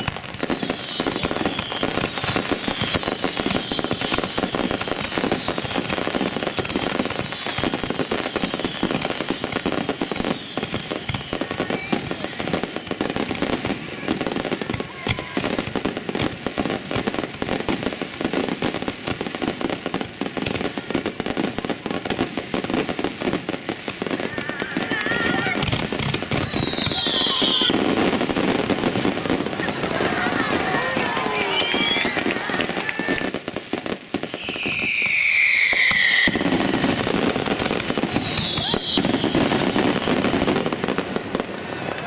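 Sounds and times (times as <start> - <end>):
falling fireworks whistles: 0.0 - 42.0
fireworks bursts and crackling: 0.0 - 42.0.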